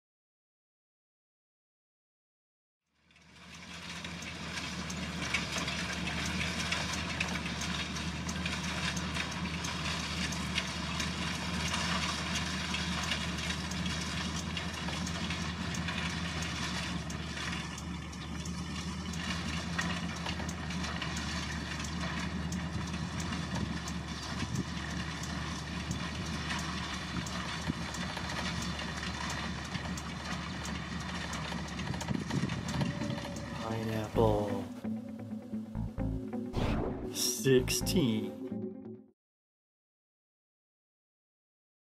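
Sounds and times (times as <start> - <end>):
low engine hum: 3.0 - 39.0
hay loader clattering: 3.4 - 34.4.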